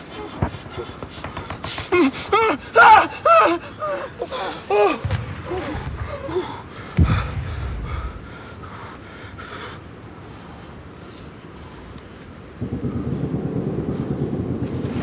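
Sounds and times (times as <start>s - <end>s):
man groaning and gasping: 1.8s - 8.3s
deep thump: 5.0s - 6.3s, 7.0s - 8.2s
low rumble: 5.0s - 8.8s.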